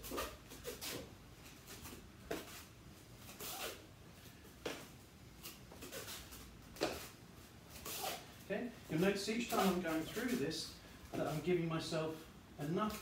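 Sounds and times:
footwork scuffing on floor: 0.0 - 3.6, 8.8 - 11.6
gloved arms meeting: 4.6 - 6.0.

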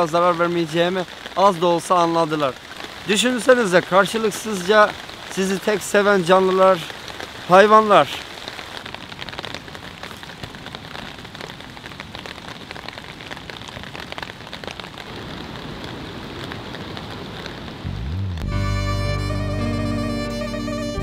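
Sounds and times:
rain falling: 0.0 - 21.0
bowed string music: 17.9 - 21.0.

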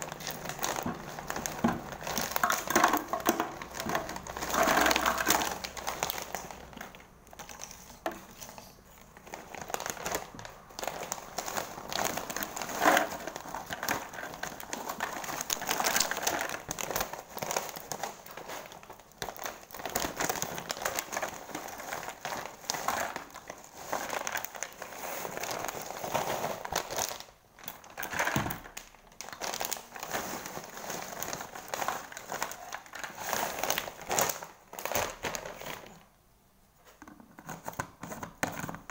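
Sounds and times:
plastic snack bag crinkling: 0.0 - 36.1
chips clattering into plastic jar: 0.1 - 8.2, 12.2 - 17.0.

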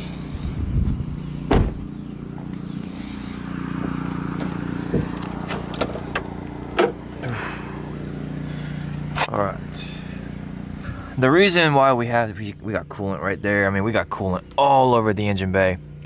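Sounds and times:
hood latch metal clicks and clunks: 4.4 - 7.0.

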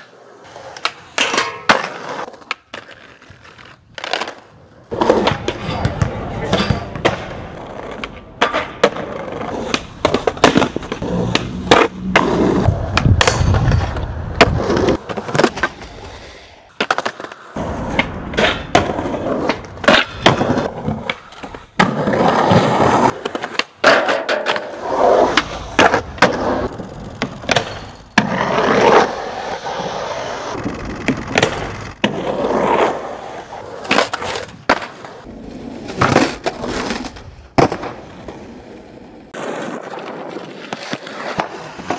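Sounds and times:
skateboard grinding on metal rail: 0.0 - 16.0, 16.7 - 37.2
skateboard wheels rolling on concrete: 0.0 - 41.9
skateboard tail pops and landings: 4.0 - 15.8, 16.7 - 29.1, 30.5 - 33.0, 33.7 - 35.3, 35.9 - 38.6, 39.4 - 41.9.

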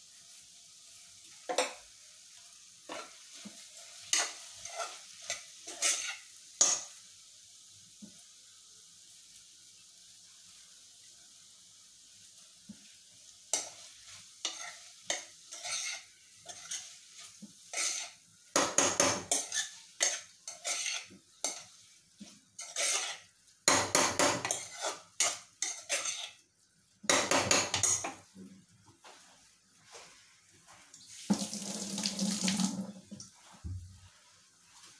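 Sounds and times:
food sizzling: 0.0 - 34.9
ladle scraping a pan: 2.9 - 6.9, 13.5 - 21.8, 22.6 - 26.4.

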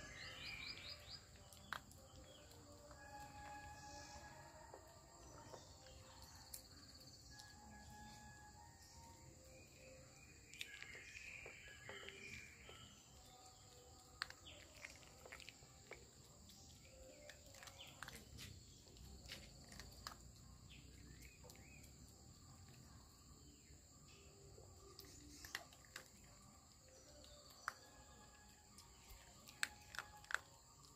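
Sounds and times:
bird chirps: 0.0 - 20.0, 20.6 - 30.9
puppy chewing food in metal bowl: 12.5 - 22.8, 24.9 - 30.9.

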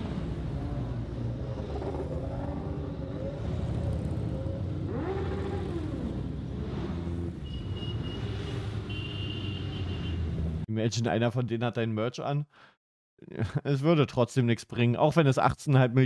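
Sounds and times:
motorcycle engines rumbling: 0.0 - 10.7.

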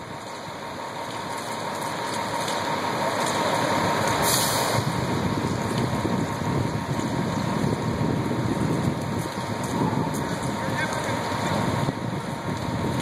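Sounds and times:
fire truck engine running: 0.0 - 13.0
brief hiss: 4.2 - 4.8.

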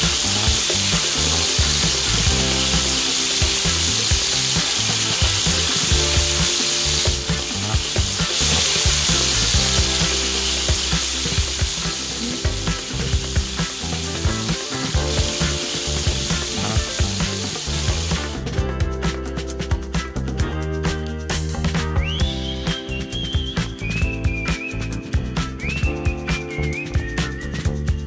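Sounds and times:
oil popping and crackling: 0.0 - 18.4
oil sizzling in a frying pan: 0.0 - 18.4
background music: 0.0 - 28.0.

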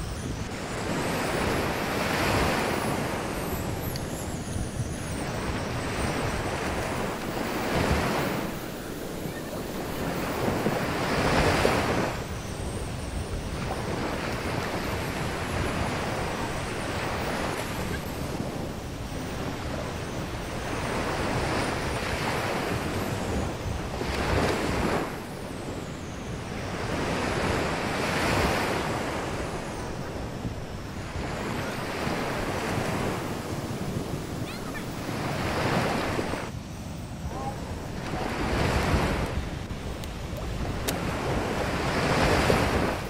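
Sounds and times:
wind buffeting microphone: 0.0 - 43.0
ocean surf breaking: 5.1 - 12.3, 26.4 - 43.0.

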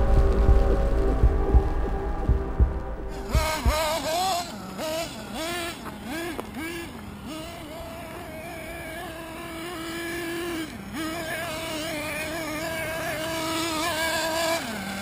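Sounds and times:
rc car engine revving: 3.1 - 15.0.

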